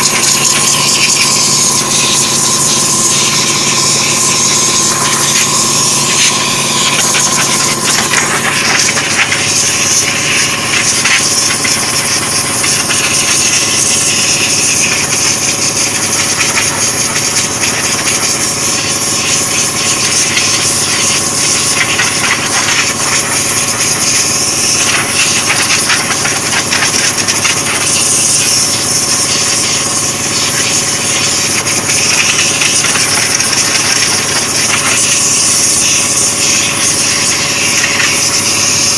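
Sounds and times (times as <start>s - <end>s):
compressor motor humming: 0.0s - 38.9s
spray gun hissing: 0.0s - 38.9s.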